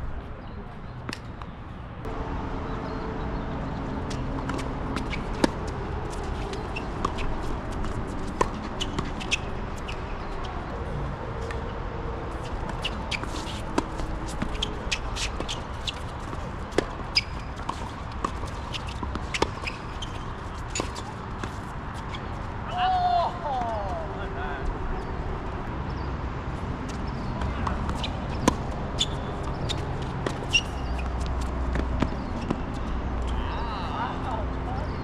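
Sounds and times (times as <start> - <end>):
short high squeaks: 28.0 - 31.2.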